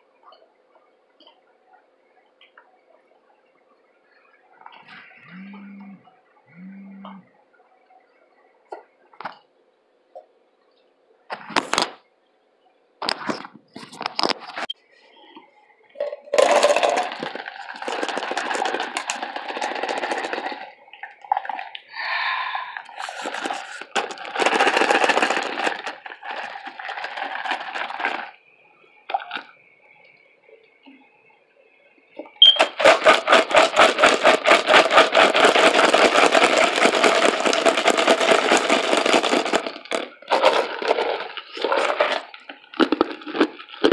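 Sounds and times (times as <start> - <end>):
ice cubes rattling in a cup: 16.0 - 28.4, 29.1 - 29.5, 32.4 - 43.9.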